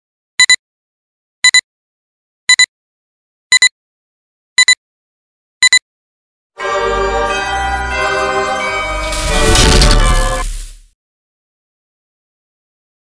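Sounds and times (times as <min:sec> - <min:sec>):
double electronic beeps: 0:05.6 - 0:05.8.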